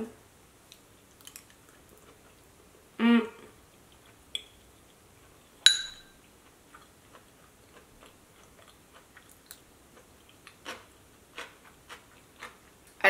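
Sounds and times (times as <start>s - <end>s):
soft chewing: 0.6s - 2.8s, 3.4s - 13.0s
metal spoon clinking on bowl: 5.6s - 6.2s.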